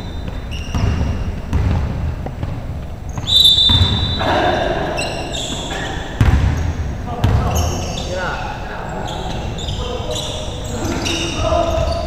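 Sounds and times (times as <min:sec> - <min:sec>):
shoes squeaking: 0:00.0 - 0:12.0
basketball thudding on court: 0:00.3 - 0:04.0
voices calling out: 0:03.1 - 0:12.0.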